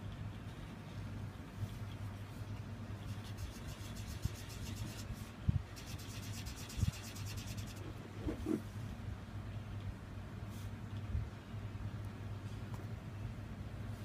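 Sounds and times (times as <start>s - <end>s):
low steady hum: 0.0s - 14.0s
marker scratching on paper: 3.0s - 8.6s.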